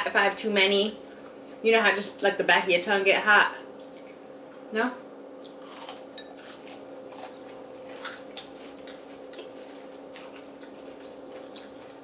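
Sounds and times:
steady low hum: 0.0s - 12.0s
crunchy food chewing: 5.3s - 12.0s.

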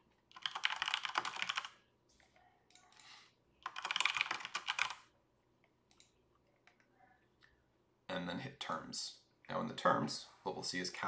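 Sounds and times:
rapid keyboard typing: 0.3s - 1.8s, 3.6s - 5.1s.

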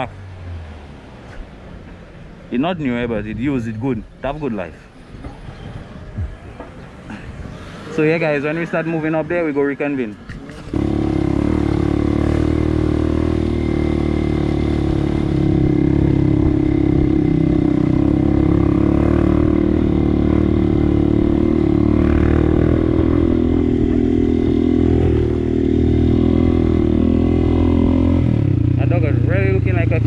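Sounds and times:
motorcycle engine running: 10.6s - 30.0s.

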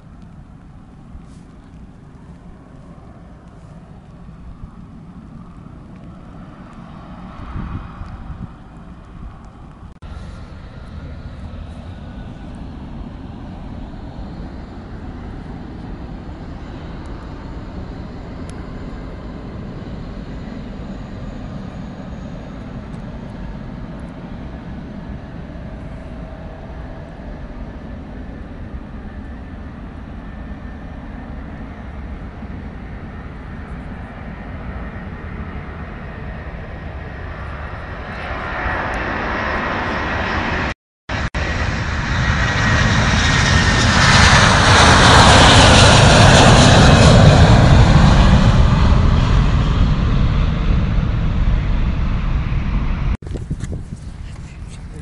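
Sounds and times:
jet engines rumbling: 0.0s - 55.0s.

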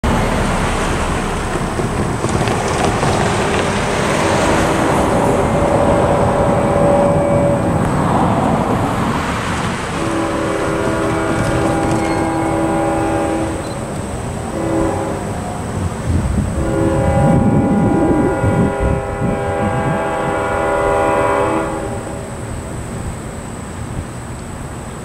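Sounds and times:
cars driving by: 0.0s - 15.8s
distant locomotive horn: 3.3s - 8.6s, 9.9s - 22.5s.

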